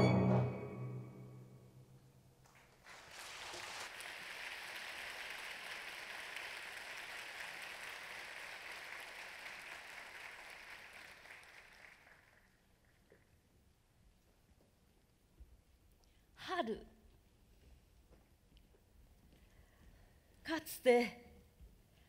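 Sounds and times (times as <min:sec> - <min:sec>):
audience applause: 0:02.8 - 0:13.0.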